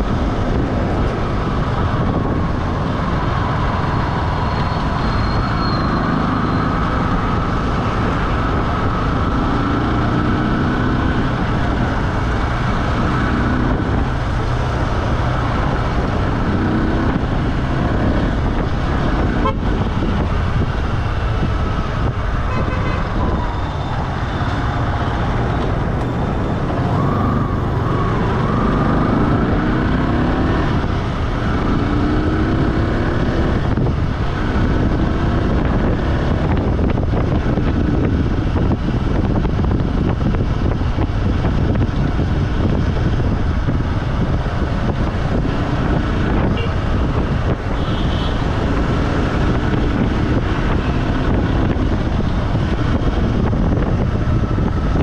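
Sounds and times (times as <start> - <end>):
passing traffic: 0.0 - 55.0
vehicle engine and road rumble: 0.0 - 55.0
car horn tooting: 22.5 - 23.2.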